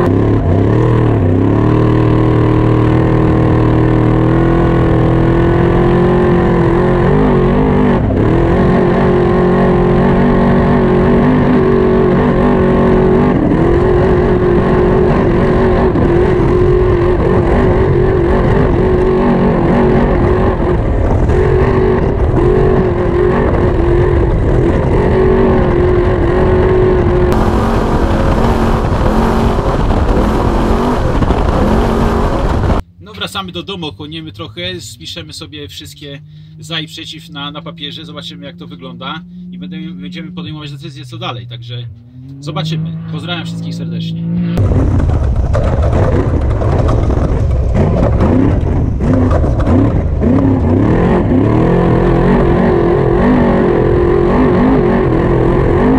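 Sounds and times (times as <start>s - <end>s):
truck engine running hard: 0.0s - 32.8s
tyres rumbling on dirt: 0.0s - 55.9s.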